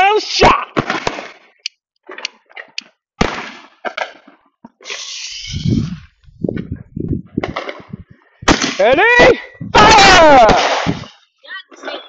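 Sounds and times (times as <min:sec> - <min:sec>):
firework bang: 0:00.8 - 0:01.4, 0:03.2 - 0:04.3, 0:07.4 - 0:08.9, 0:09.8 - 0:11.1
ground firework hissing: 0:04.8 - 0:06.1
crackling pops: 0:07.4 - 0:09.0.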